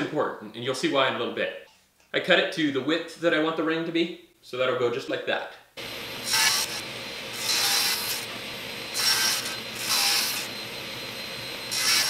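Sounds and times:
saw blade cutting wood: 0:05.8 - 0:12.0
table saw motor hum: 0:05.8 - 0:12.0.

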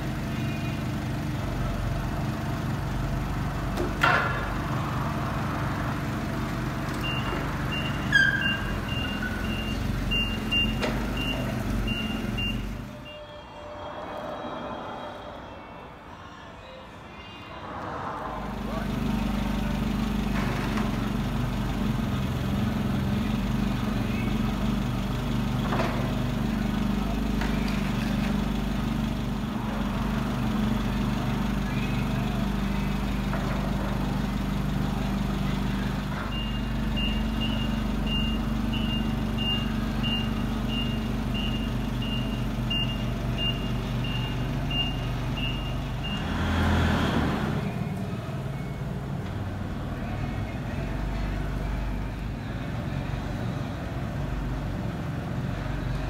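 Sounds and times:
forklift engine humming: 0:00.0 - 0:16.0, 0:17.6 - 0:56.0
reversing alarm beeping: 0:07.0 - 0:15.4, 0:36.3 - 0:46.4
loud rushing noise: 0:17.4 - 0:19.3.

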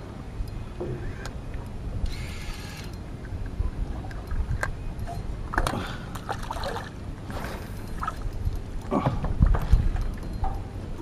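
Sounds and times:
electric reel winding line: 0:02.0 - 0:03.0.

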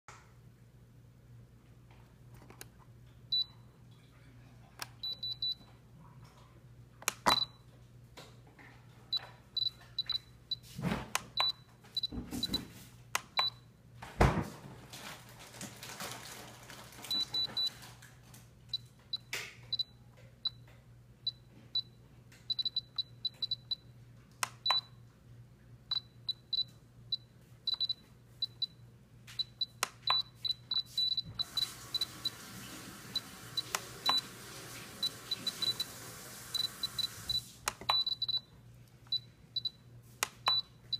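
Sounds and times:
knocks and rustles from handling: 0:11.9 - 0:12.9
short high beeps: 0:36.6 - 0:37.2.

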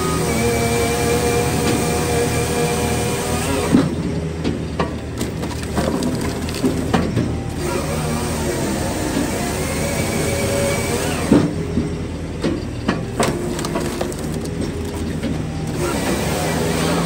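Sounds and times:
saw cutting through log: 0:00.0 - 0:04.1, 0:05.0 - 0:11.6, 0:13.1 - 0:17.0
engine and hydraulics humming: 0:00.0 - 0:17.0
clanks and knocks: 0:03.7 - 0:07.6, 0:11.2 - 0:16.1.

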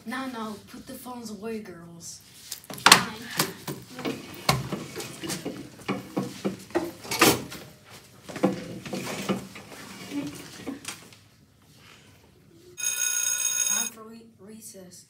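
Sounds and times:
people talking: 0:00.0 - 0:02.2, 0:02.9 - 0:04.2, 0:13.7 - 0:15.0
chairs and bags knocking: 0:03.7 - 0:07.6, 0:08.3 - 0:09.7.

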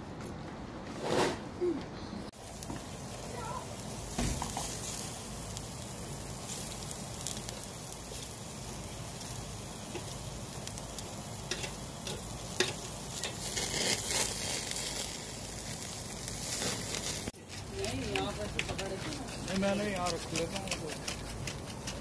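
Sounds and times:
vegetables sizzling on a grill: 0:02.3 - 0:22.0
metal tongs knocking grill grate: 0:11.4 - 0:14.2, 0:17.5 - 0:22.0.

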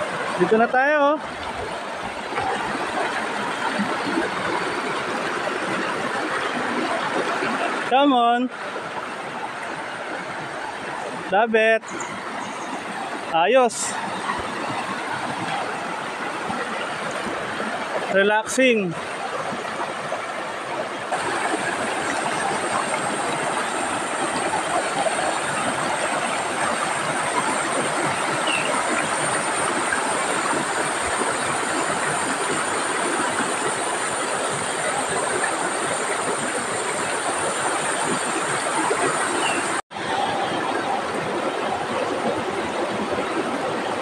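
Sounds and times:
river rushing over stones: 0:00.0 - 0:44.0.

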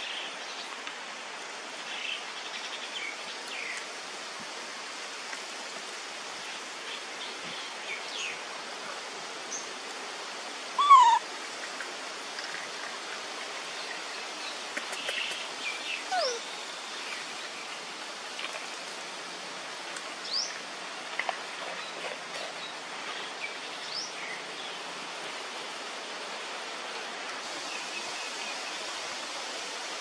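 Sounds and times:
steady rushing hiss: 0:00.0 - 0:30.0
high rising chirps: 0:10.8 - 0:11.2.

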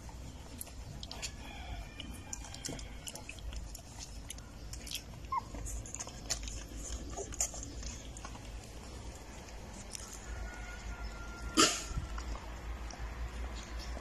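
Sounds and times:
puppies suckling: 0:00.0 - 0:14.0
puppy whimper: 0:05.1 - 0:07.9
puppy squeak: 0:05.2 - 0:06.1.

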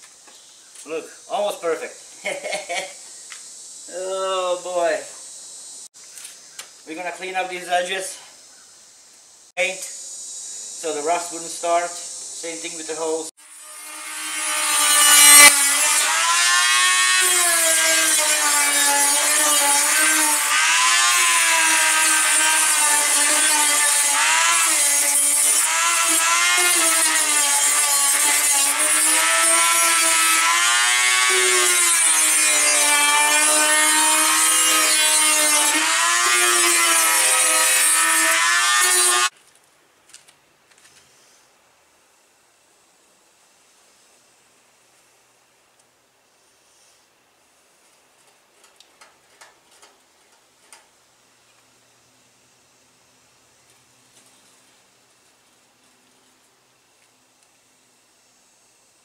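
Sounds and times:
power tool whining on metal: 0:12.5 - 0:39.3.

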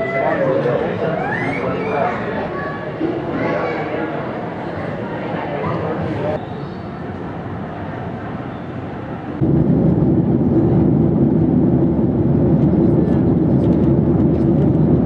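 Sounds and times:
aircraft noise: 0:03.8 - 0:15.0
loud low rumble: 0:09.3 - 0:15.0.

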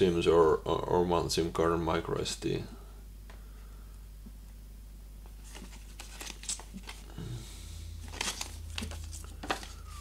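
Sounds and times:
paper leaflets rustling: 0:05.4 - 0:07.1, 0:08.0 - 0:10.0.

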